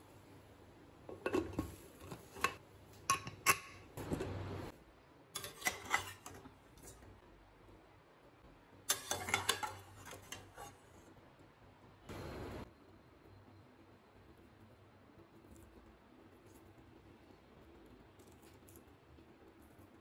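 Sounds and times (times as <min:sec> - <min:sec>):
metal ladle clinking against pan: 0:01.2 - 0:03.8, 0:08.9 - 0:10.7.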